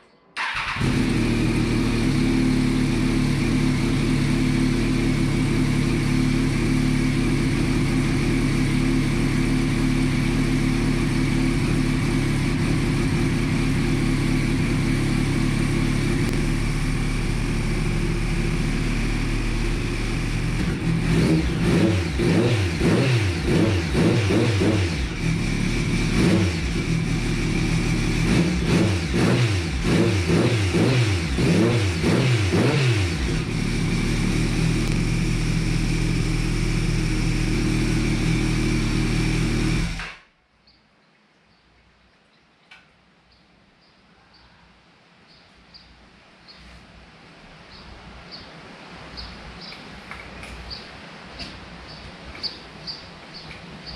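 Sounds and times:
motorcycle engine running and revving: 0:00.4 - 0:40.2.

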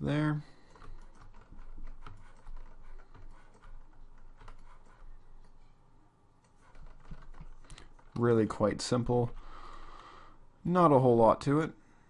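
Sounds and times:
keyboard and mouse clicks: 0:00.7 - 0:05.6, 0:06.4 - 0:08.3.

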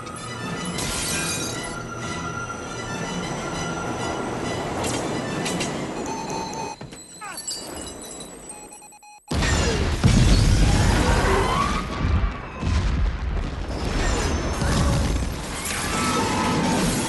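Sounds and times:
metal crashing grinding and screeching: 0:00.0 - 0:06.0, 0:13.7 - 0:17.0.

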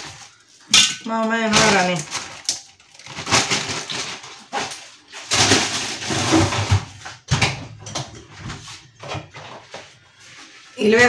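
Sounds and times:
plastic bag rustling: 0:00.0 - 0:07.2.

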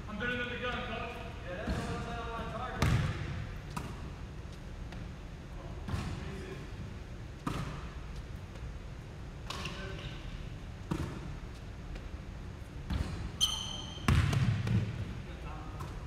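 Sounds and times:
basketball bouncing on hardwood floor: 0:02.8 - 0:04.0, 0:10.9 - 0:11.3, 0:14.1 - 0:15.0
shoe squeak: 0:09.5 - 0:10.3, 0:13.3 - 0:14.1.

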